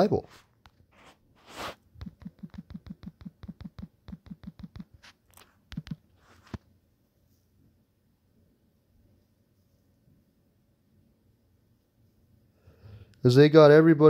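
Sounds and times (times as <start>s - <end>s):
fingertip taps on phone screen: 2.0s - 5.0s, 5.7s - 6.0s.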